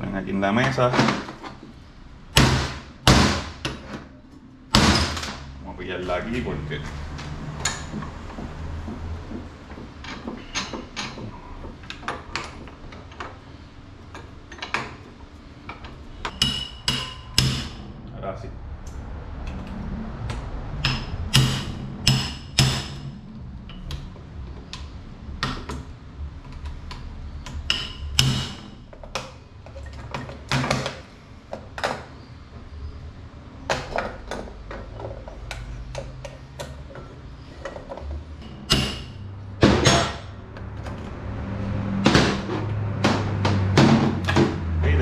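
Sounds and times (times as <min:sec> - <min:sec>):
low steady hum: 0:00.0 - 0:45.0.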